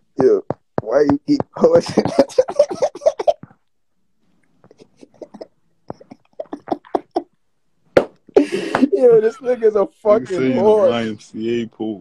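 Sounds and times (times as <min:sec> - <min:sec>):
man talking: 0:00.2 - 0:03.0, 0:08.6 - 0:12.0.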